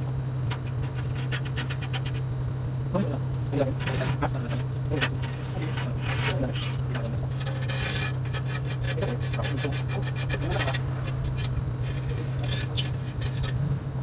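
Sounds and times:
low hum: 0:00.0 - 0:14.0
razor blade scraping glass: 0:00.5 - 0:02.3, 0:03.6 - 0:13.5.

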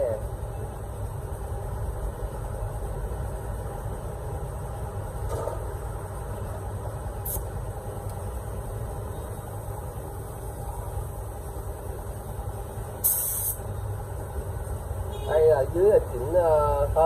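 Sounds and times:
air hose hiss: 0:07.2 - 0:07.5, 0:13.0 - 0:13.6.

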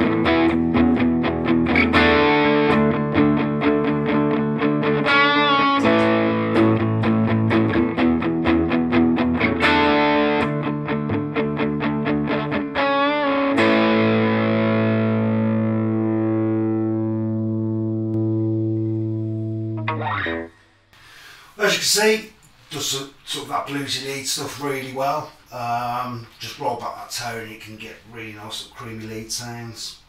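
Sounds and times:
overdriven electric guitar lead: 0:00.0 - 0:20.6.

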